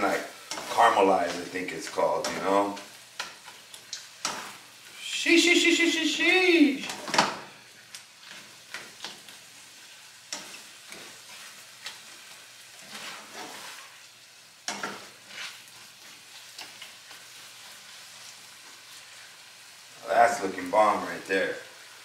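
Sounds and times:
food sizzling in a frying pan: 0.0s - 22.0s
plastic spatula scraping pan: 12.8s - 13.9s.

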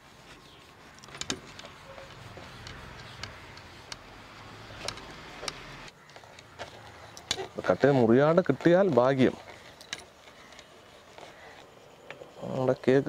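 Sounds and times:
light clicks and taps: 2.3s - 4.1s.

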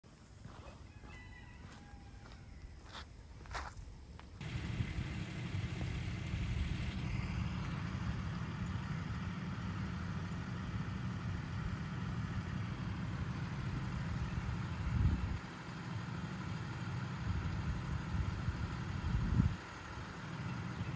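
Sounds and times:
vehicle engine idling: 0.1s - 20.9s.

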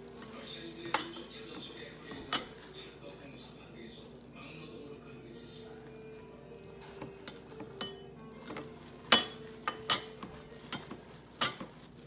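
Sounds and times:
ceramic bowl clinking: 0.0s - 4.4s, 5.8s - 12.0s.

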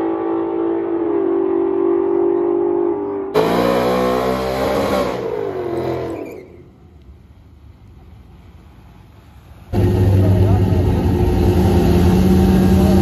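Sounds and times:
low engine rumble: 0.0s - 4.1s, 5.0s - 13.0s
car engine revving hard: 0.0s - 6.3s, 9.7s - 13.0s.

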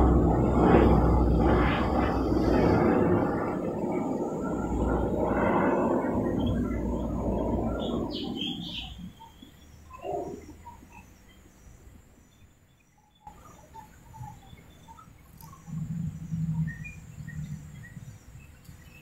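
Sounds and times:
low rumble: 0.0s - 9.3s
birds chirping: 0.0s - 19.0s.

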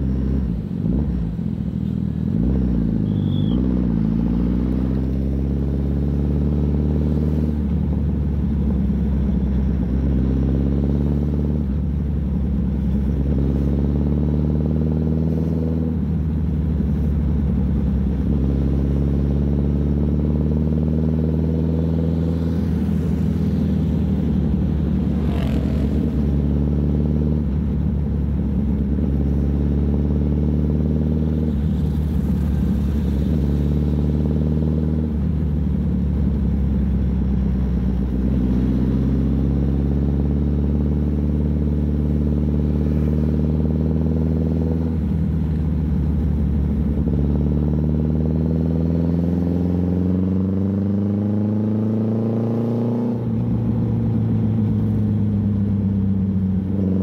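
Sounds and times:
motorcycle engine running: 14.8s - 48.4s.

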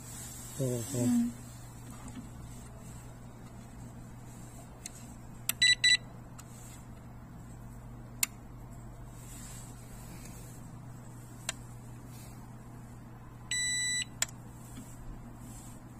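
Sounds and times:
low steady hum: 0.0s - 15.9s
short electronic beeps: 13.5s - 14.1s.

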